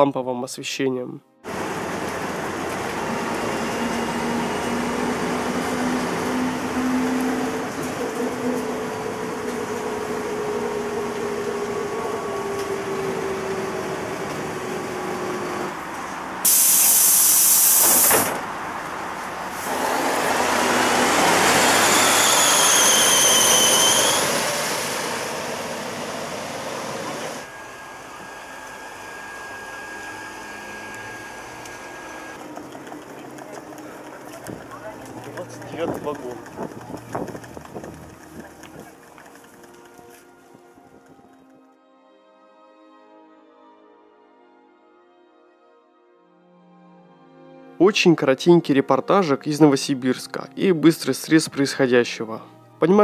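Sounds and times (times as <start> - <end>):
bus engine slowing: 1.4 - 41.4
compressed air hiss: 16.4 - 18.4.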